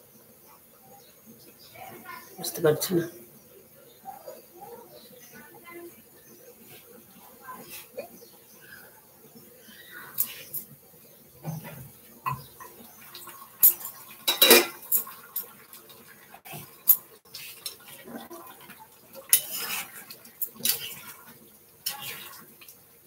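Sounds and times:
pot lid and spoon clattering: 14.2 - 15.0.

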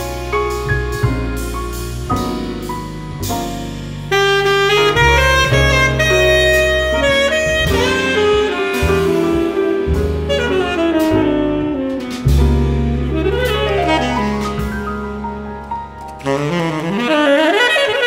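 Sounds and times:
double bass: 0.0 - 18.0
piano: 0.0 - 18.0
tenor saxophone melody: 4.1 - 18.0.

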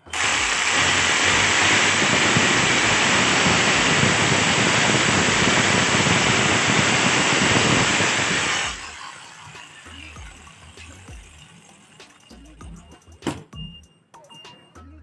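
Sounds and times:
electric demolition breaker running: 0.0 - 11.9.

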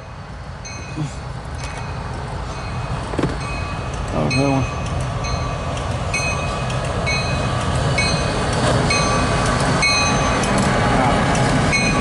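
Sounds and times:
diesel locomotive passing: 0.0 - 12.0
steel wheels on rails: 0.0 - 12.0.

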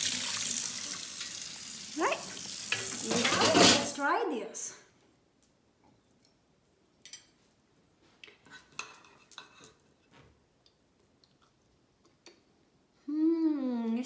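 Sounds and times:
cutlery scraping on plate: 2.7 - 4.0, 8.4 - 10.1.

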